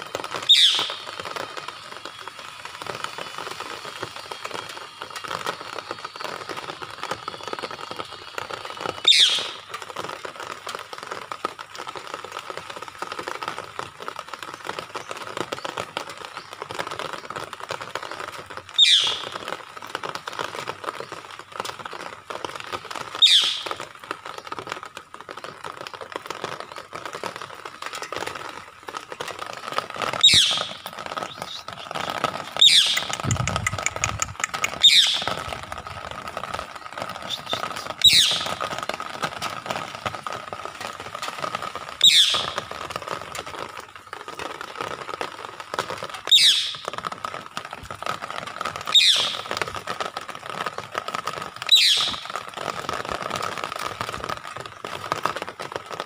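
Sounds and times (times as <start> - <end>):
parakeet screeching: 9.1 - 9.5, 18.8 - 19.2, 30.2 - 30.7, 32.6 - 34.1, 34.7 - 35.3, 37.3 - 38.5, 42.0 - 42.5, 49.0 - 49.4, 51.7 - 52.2.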